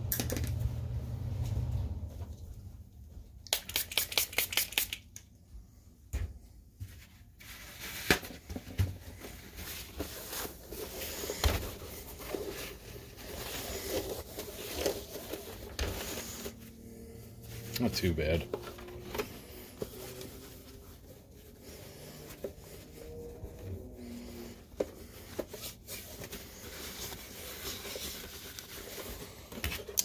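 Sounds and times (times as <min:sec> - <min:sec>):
paper towel rubbing on plastic: 0:09.0 - 0:29.7.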